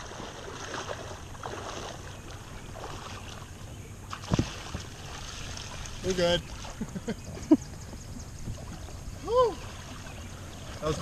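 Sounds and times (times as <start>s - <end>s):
water splashing and sloshing: 0.0s - 11.0s.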